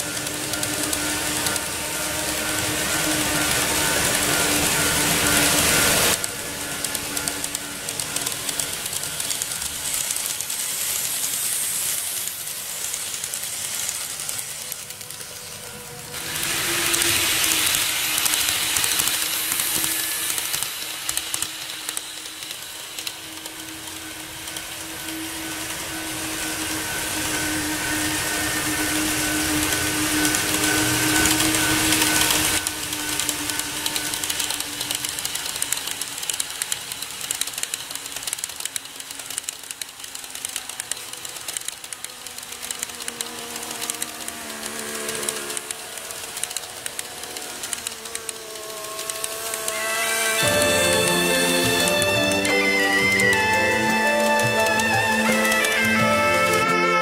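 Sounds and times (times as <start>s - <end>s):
model train motors humming: 0.0s - 57.0s
wheels rattling along rails: 0.0s - 57.0s.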